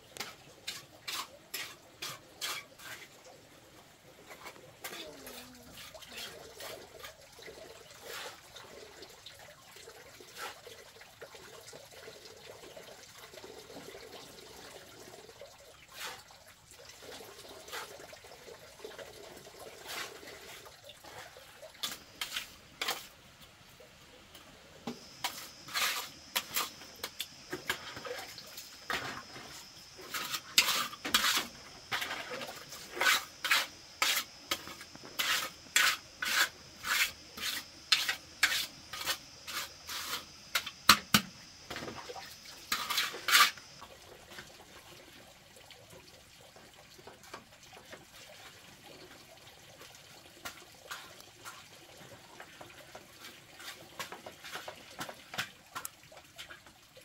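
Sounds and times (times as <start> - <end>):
hand tool scraping wet mud: 0.2 - 3.1, 4.3 - 7.2, 19.8 - 23.1, 24.9 - 41.8, 42.6 - 43.8.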